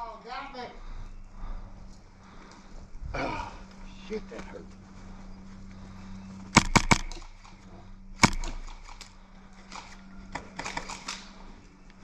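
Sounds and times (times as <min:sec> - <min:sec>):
airsoft gun shot: 0:06.5 - 0:07.4, 0:08.2 - 0:09.0.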